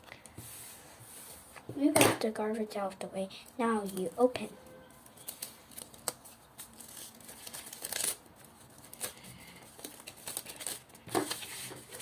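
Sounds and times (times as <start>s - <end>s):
paper rustling and crinkling: 5.1s - 12.0s.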